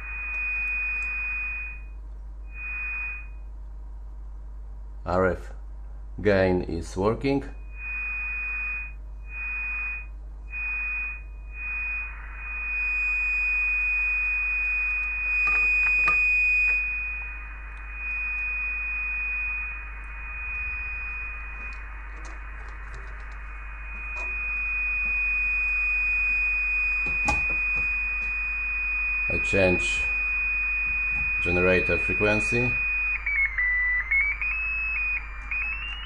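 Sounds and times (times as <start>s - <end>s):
receiver hiss: 7.2s - 36.0s
high-pitched radio beat tone: 10.6s - 25.3s.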